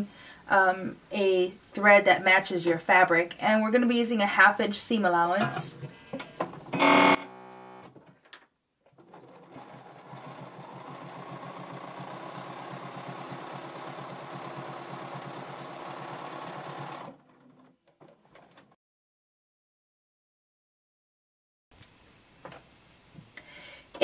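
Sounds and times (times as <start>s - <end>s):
sewing machine stitching: 8.9s - 18.7s.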